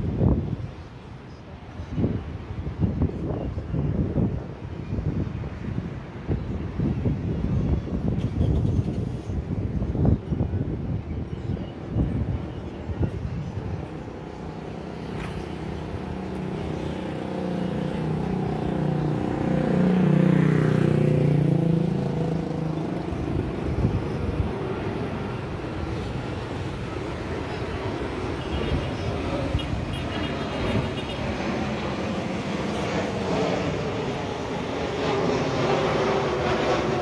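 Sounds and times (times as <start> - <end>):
jet engines rumbling: 0.0 - 37.0
road vehicle passing: 14.8 - 37.0.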